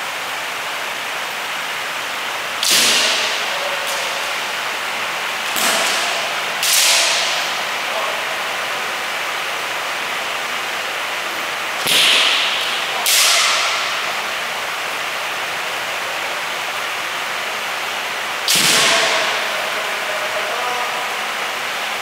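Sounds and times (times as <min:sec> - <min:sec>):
steady hiss: 0:00.0 - 0:22.0
bamboo sword strikes cracking: 0:02.6 - 0:04.1, 0:05.5 - 0:07.5, 0:11.8 - 0:13.9.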